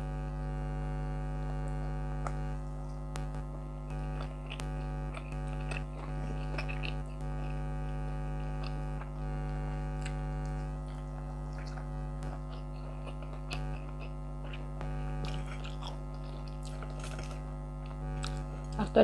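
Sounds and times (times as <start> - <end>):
air conditioner humming: 0.0 - 19.0
chewing clicks: 3.9 - 9.2, 9.9 - 18.8.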